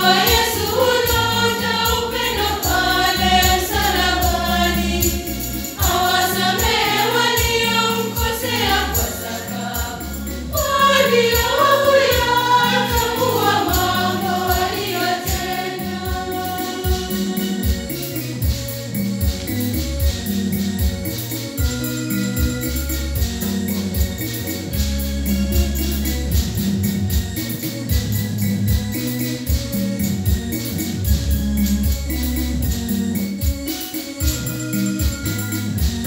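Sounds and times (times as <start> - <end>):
choir singing a hymn: 0.0 - 18.5
light percussion beat: 0.0 - 36.0.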